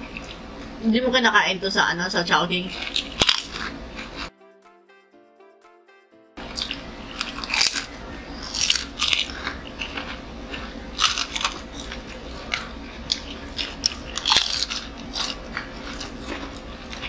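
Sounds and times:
crunchy chewing of fried chicken: 0:00.0 - 0:00.7, 0:02.7 - 0:04.3, 0:06.4 - 0:17.0.

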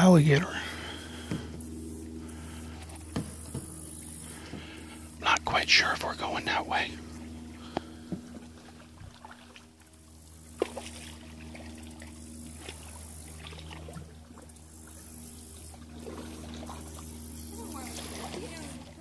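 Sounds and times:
faint low hum: 0:00.0 - 0:19.0
stream water trickling: 0:06.9 - 0:19.0.

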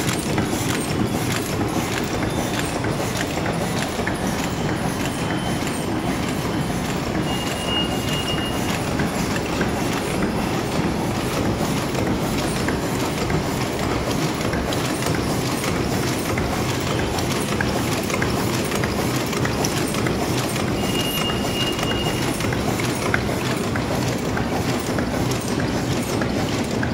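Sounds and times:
paper cup machine clattering: 0:00.0 - 0:26.9.

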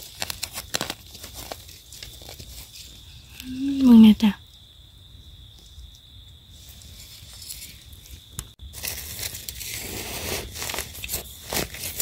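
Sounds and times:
dry leaves rustling and crackling: 0:00.0 - 0:03.2, 0:06.7 - 0:12.0
faint steady high tone: 0:02.7 - 0:04.7.

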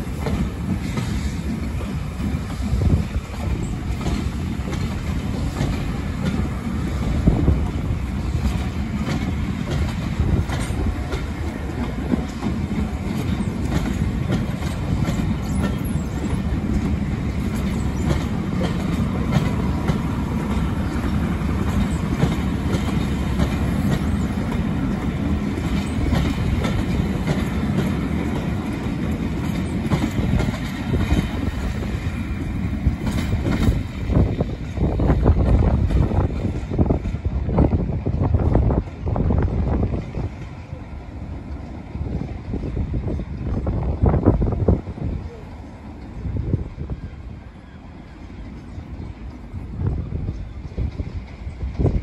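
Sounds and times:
wheels clicking over rail joints: 0:00.0 - 0:40.8
train wheels rumbling on rails: 0:00.0 - 0:52.0.

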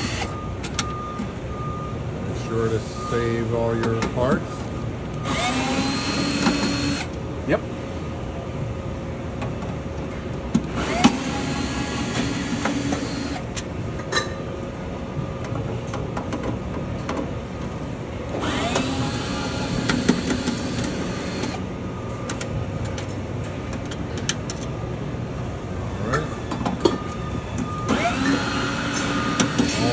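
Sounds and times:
cordless drill whining: 0:05.2 - 0:07.1, 0:18.4 - 0:21.6, 0:27.9 - 0:29.9.

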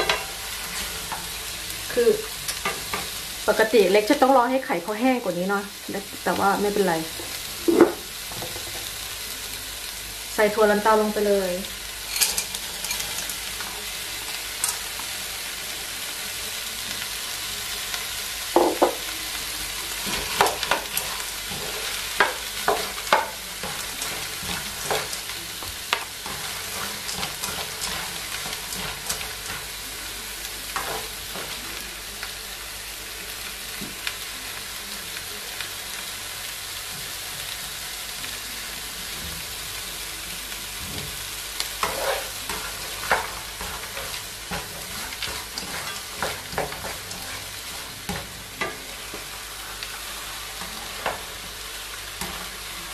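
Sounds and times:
vegetables sizzling in a pan: 0:00.0 - 0:52.9
spatula scraping and knocking pan: 0:20.0 - 0:29.7, 0:41.8 - 0:49.9.

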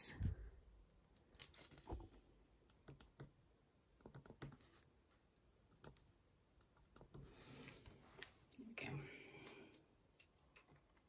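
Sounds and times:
pen tapping and scratching paper: 0:02.7 - 0:04.9.

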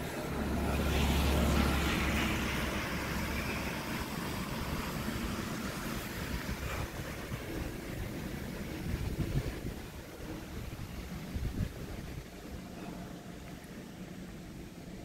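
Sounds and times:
vehicle passing by: 0:00.0 - 0:09.6
street noise: 0:00.0 - 0:15.0.

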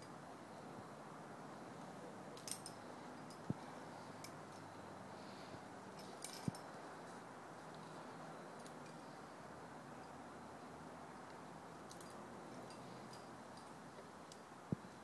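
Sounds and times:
steady low hiss: 0:00.0 - 0:15.0
metallic clinks of carabiners: 0:02.3 - 0:03.6, 0:05.9 - 0:06.8, 0:08.4 - 0:09.2, 0:11.2 - 0:14.5.

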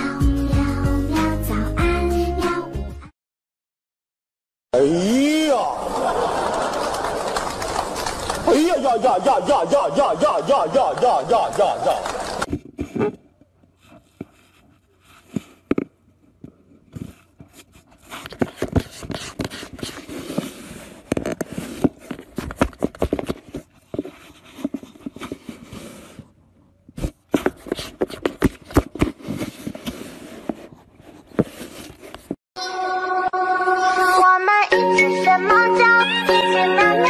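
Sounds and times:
cat scratching cardboard box: 0:27.0 - 0:32.3.

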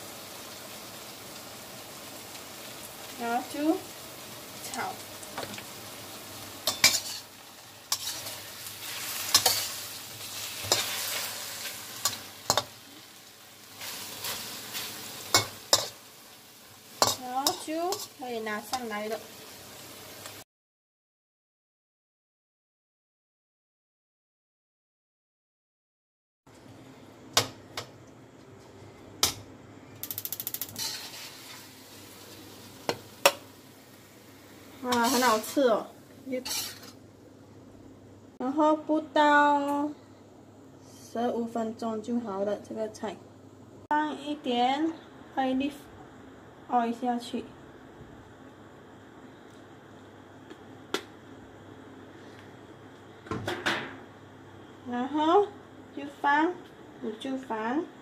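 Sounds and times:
food sizzling in hot oil: 0:00.0 - 0:20.4, 0:30.0 - 0:37.1
spatula clinking on pan: 0:06.6 - 0:07.2
spatula scraping a wok: 0:06.6 - 0:16.1, 0:16.8 - 0:19.0, 0:30.5 - 0:33.4, 0:34.7 - 0:37.0
dish scraping: 0:07.9 - 0:08.4, 0:36.4 - 0:37.0.

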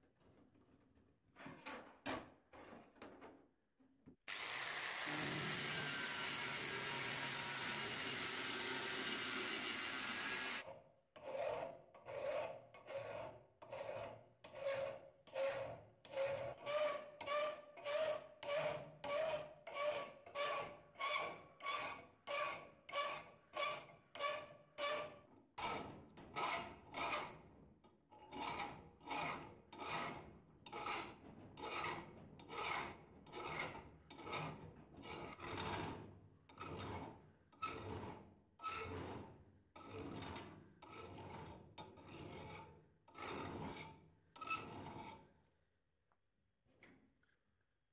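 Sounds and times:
file strokes on steel: 0:04.3 - 0:10.6, 0:11.2 - 0:25.1, 0:28.3 - 0:45.2
angle grinder on steel: 0:04.3 - 0:10.7.

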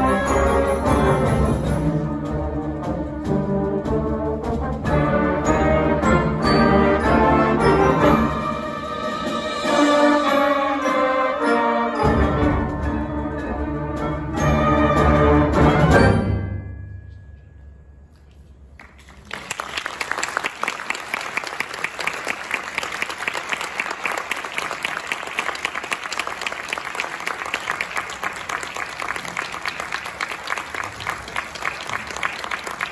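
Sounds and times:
audience applauding: 0:18.8 - 0:32.9.

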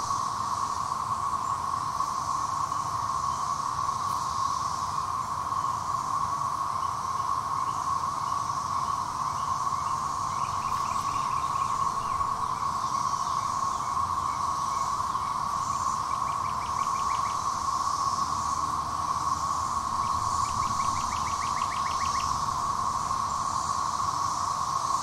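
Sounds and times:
cicada chorus drone: 0:00.0 - 0:25.0
pulsing high hiss: 0:07.3 - 0:25.0.

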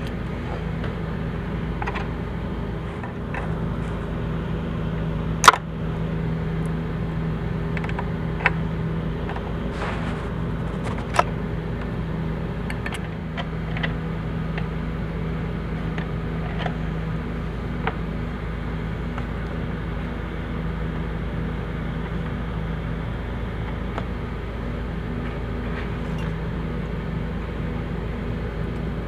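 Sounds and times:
steady mechanical hum: 0:00.0 - 0:29.0.

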